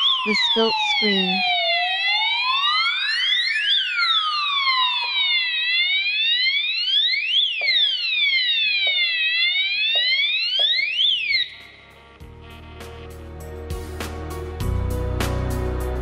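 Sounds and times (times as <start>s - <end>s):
fire alarm siren sweeping: 0.0s - 12.2s.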